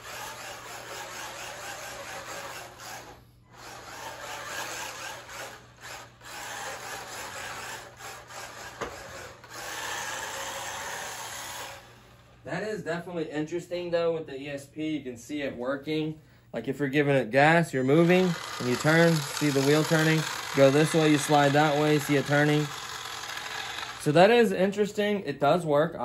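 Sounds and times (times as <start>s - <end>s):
small electric motor whirring: 0.0s - 12.4s, 17.8s - 24.4s.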